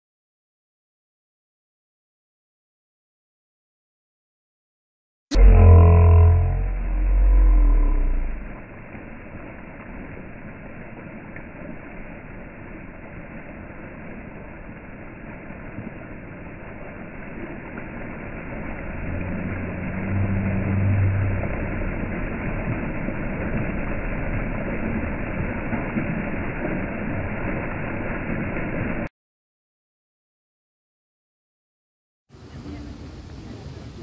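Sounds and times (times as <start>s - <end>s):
low hum: 5.3s - 29.1s
fountain water splashing: 6.2s - 29.1s, 32.3s - 34.0s.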